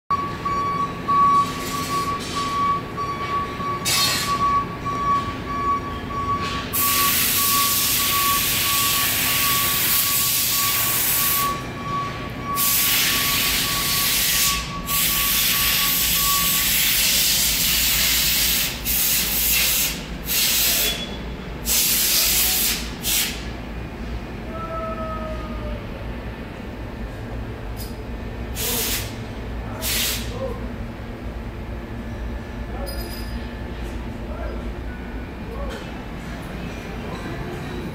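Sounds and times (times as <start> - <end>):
machinery low hum: 0.1 - 37.9
loud machine hissing: 6.7 - 11.6, 12.6 - 23.6, 28.5 - 30.4.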